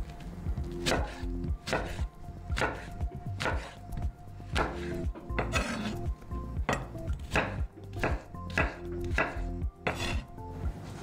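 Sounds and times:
knife cutting apple: 0.8s - 3.8s, 4.5s - 6.0s, 6.7s - 10.3s
knife tapping cutting board: 6.7s - 10.2s.

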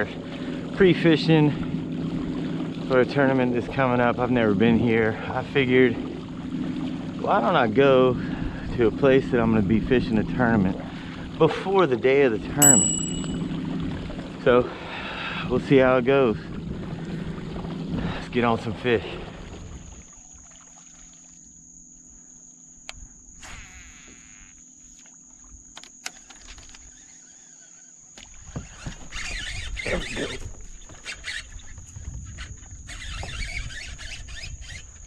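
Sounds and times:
insects droning: 0.0s - 35.0s
wind gusts on microphone: 28.5s - 35.0s.

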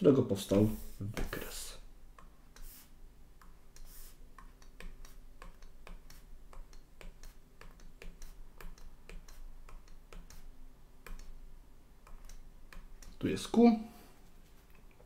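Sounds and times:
stylus tapping on drawing tablet: 3.4s - 11.4s.

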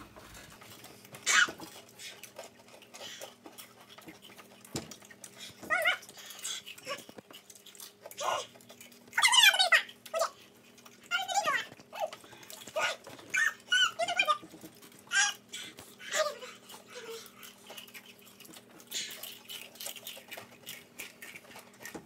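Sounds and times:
high-pitched whimpering cries: 15.1s - 17.6s.

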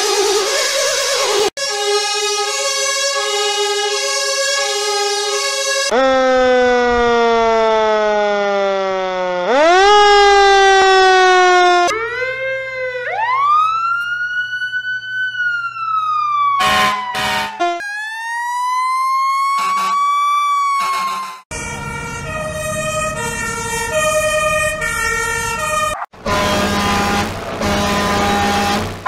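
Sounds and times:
two-tone siren: 0.0s - 29.0s
siren wail: 0.5s - 29.0s
short horn blasts: 16.6s - 17.8s, 25.6s - 29.0s.

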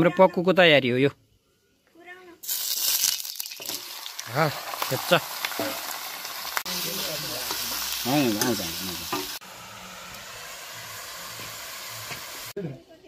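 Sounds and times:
meat sizzling in hot oil: 2.4s - 12.6s.

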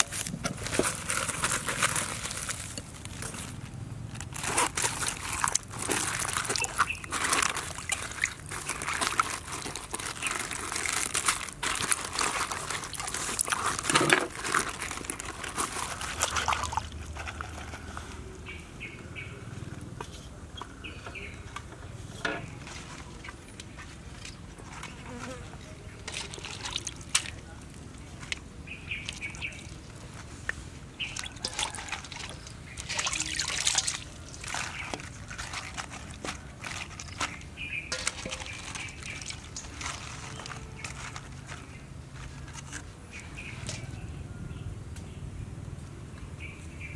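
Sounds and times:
crinkly leaf rustling: 0.0s - 18.7s, 20.0s - 44.4s
water splashing in a steel bowl: 5.0s - 10.2s, 15.9s - 17.0s, 26.0s - 30.0s, 31.0s - 40.9s.

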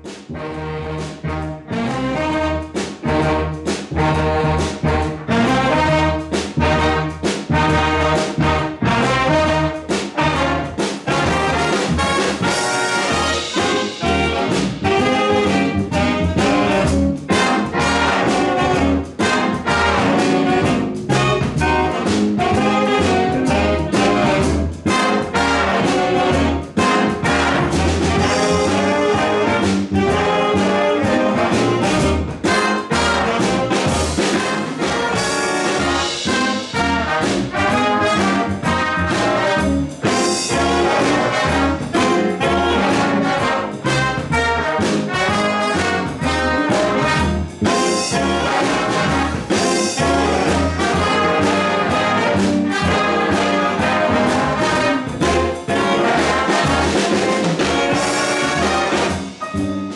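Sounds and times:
jazz big band playing: 0.0s - 59.9s.

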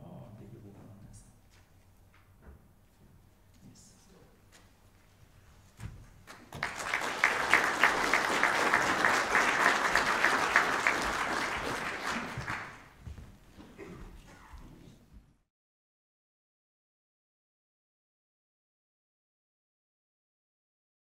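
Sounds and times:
audience applauding: 6.2s - 13.0s.

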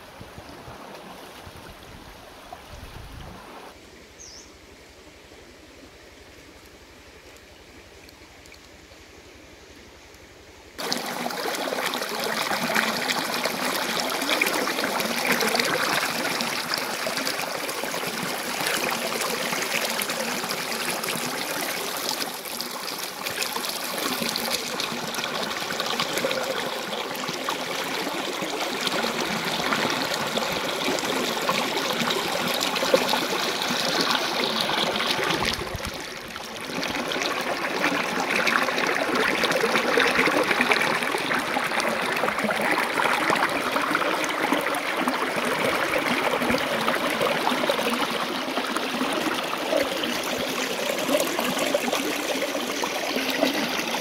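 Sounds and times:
stream rushing over stones: 10.8s - 54.0s.

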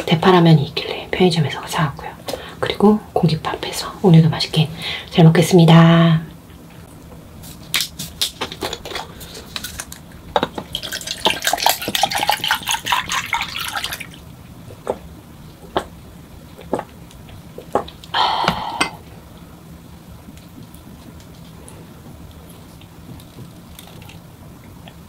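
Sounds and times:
drink pouring into glass: 10.7s - 14.2s
person swallowing: 18.1s - 19.1s.

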